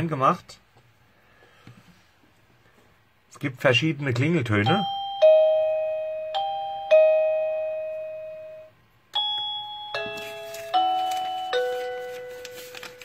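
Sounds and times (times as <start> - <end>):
electronic doorbell chime: 4.6 - 12.6.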